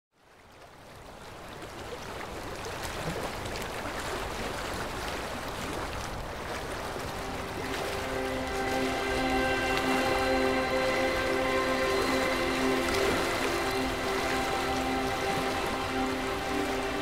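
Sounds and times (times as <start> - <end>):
water rushing and splashing: 0.4 - 17.0
steady music tones: 7.1 - 17.0.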